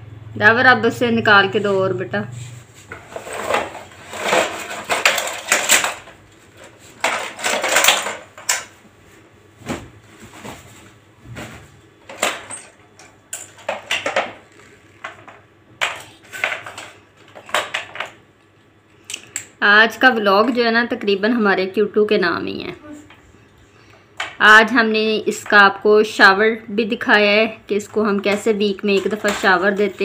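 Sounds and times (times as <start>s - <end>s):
plastic toys clicking and knocking: 3.4s - 6.2s, 7.0s - 8.8s, 12.1s - 18.2s.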